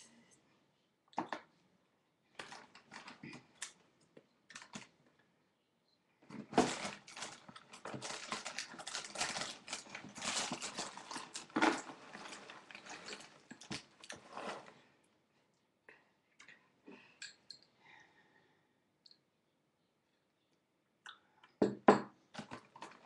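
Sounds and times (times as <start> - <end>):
snack packaging crinkling: 6.6 - 14.2.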